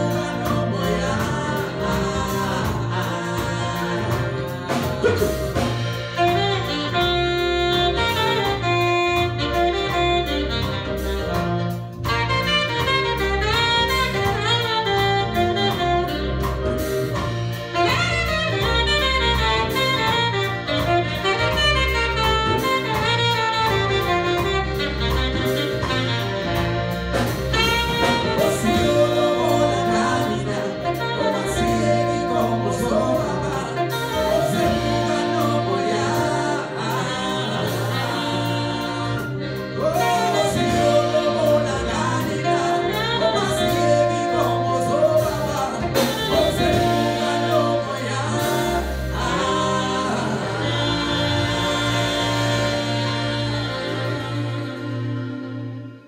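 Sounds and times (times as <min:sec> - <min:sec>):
man singing: 0:00.0 - 0:06.8, 0:27.5 - 0:54.9
drum kit: 0:00.0 - 0:56.0
electric keyboards: 0:00.0 - 0:56.0
guitar: 0:00.0 - 0:56.0
saxophone: 0:00.0 - 0:56.0.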